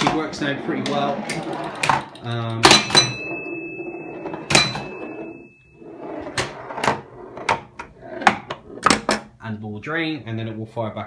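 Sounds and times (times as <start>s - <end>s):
steel ball rolling: 0.0s - 9.0s
thin high ringing tone: 2.8s - 6.2s.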